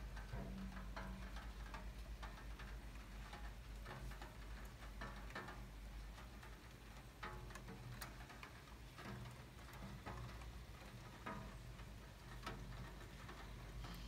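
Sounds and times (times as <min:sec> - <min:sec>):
raindrops dripping on ledge: 0:00.0 - 0:14.0.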